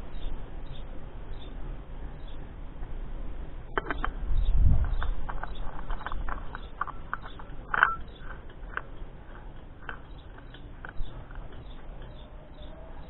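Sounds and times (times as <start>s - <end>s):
small birds chirping: 0.0s - 2.6s, 3.7s - 13.0s
oil filter clicking and scraping: 4.8s - 12.2s.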